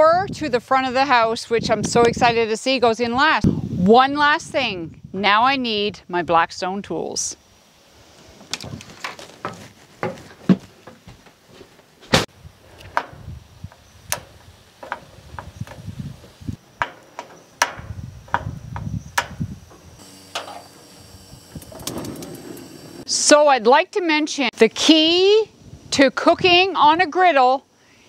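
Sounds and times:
knocks and clatter of handling: 0:08.4 - 0:12.2, 0:14.1 - 0:20.6
door opening: 0:14.1 - 0:23.1
control knobs turning: 0:16.8 - 0:23.1.

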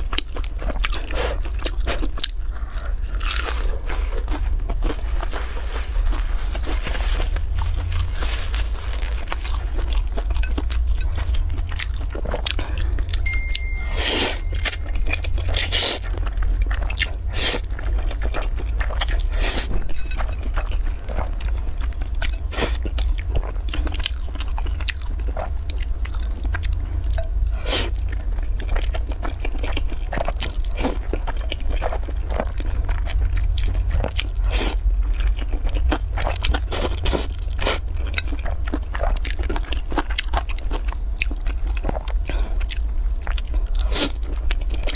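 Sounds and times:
steady low hum: 0:00.0 - 0:44.9
chewing mouth sounds: 0:09.3 - 0:44.9.

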